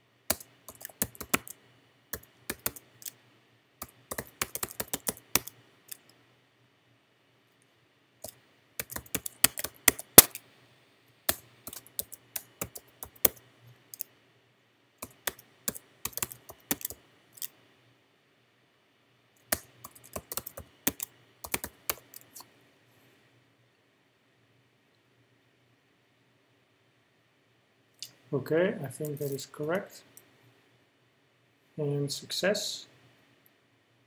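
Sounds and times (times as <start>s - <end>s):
typing on computer keyboard: 0.3s - 1.6s, 2.2s - 3.1s, 3.8s - 6.0s, 8.2s - 10.4s, 11.3s - 14.0s, 15.0s - 17.5s, 19.4s - 22.4s.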